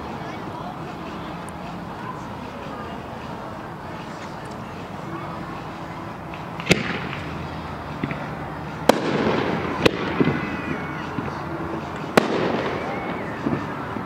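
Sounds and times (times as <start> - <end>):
fireworks crackling: 3.9 - 14.0
fireworks bangs: 6.3 - 14.0.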